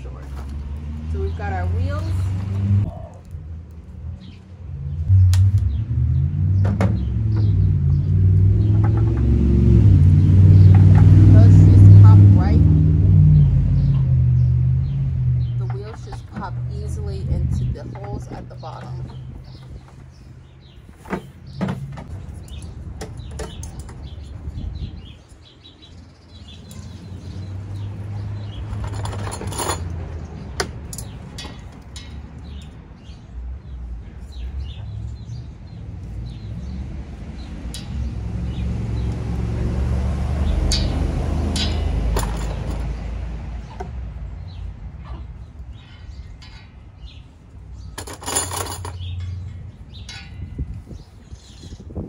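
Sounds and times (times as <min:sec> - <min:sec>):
small birds chirping: 0:00.0 - 0:52.0
metal wire rattling: 0:26.6 - 0:32.7, 0:40.4 - 0:43.7, 0:46.1 - 0:51.5
metal rods clicking and rustling: 0:26.6 - 0:32.8, 0:40.7 - 0:43.2, 0:46.1 - 0:50.9.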